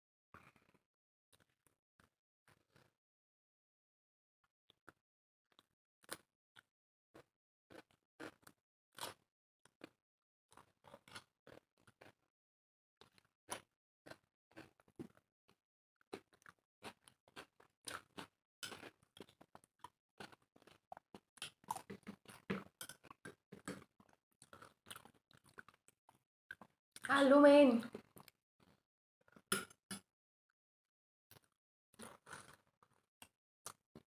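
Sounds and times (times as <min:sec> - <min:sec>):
people chewing and biting: 0:01.4 - 0:02.9, 0:05.5 - 0:12.3, 0:13.0 - 0:27.1, 0:27.9 - 0:29.5, 0:31.3 - 0:34.0.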